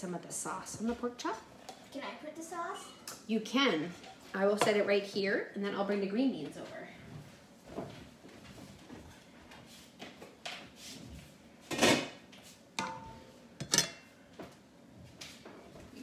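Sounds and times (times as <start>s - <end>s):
kitchen knocks: 12.8s - 14.0s
metallic ring: 12.8s - 14.1s.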